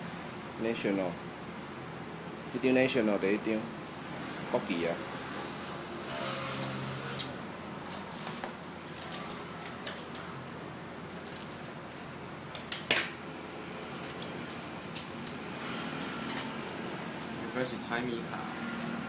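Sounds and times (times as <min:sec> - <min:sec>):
foil wrappers crinkling: 0:08.1 - 0:10.3, 0:11.1 - 0:12.8, 0:13.7 - 0:17.5.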